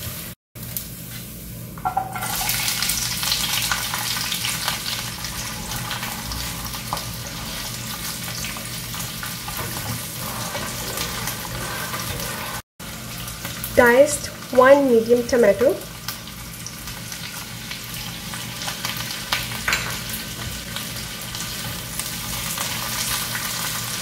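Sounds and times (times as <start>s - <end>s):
onion sizzling in hot oil: 0.0s - 24.0s
spatula scraping a pan: 9.5s - 12.6s.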